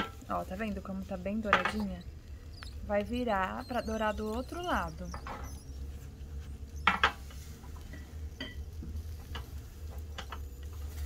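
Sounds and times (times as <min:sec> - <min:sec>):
steady low hum: 0:00.0 - 0:11.0
utensils knocking on frying pan: 0:01.5 - 0:01.9, 0:06.8 - 0:07.2.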